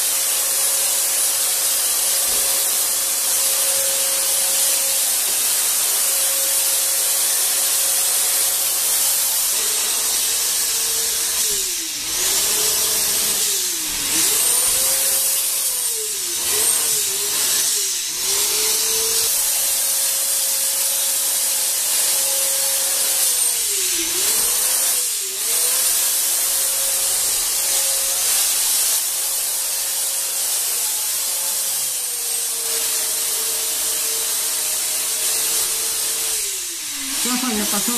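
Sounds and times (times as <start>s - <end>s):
fogger blower motor whining: 35.8s - 37.9s
spray hissing: 36.4s - 37.9s.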